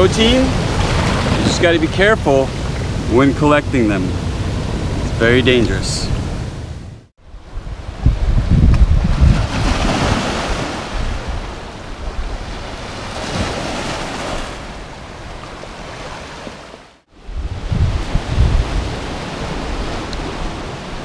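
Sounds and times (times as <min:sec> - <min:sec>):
surf washing over rocks: 0:00.0 - 0:06.6
wind rumbling on microphone: 0:00.0 - 0:13.5, 0:17.1 - 0:21.0.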